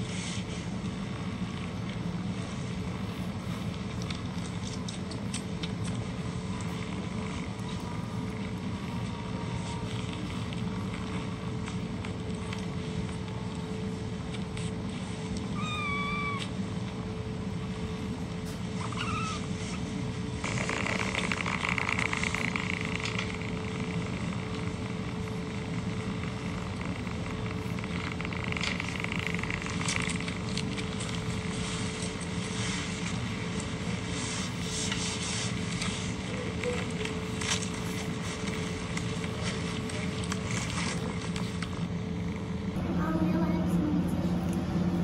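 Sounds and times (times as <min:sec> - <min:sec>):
kitten mewing: 0:15.6 - 0:16.6, 0:18.8 - 0:19.5
cats purring: 0:15.6 - 0:44.8
rustling noise: 0:26.0 - 0:42.7.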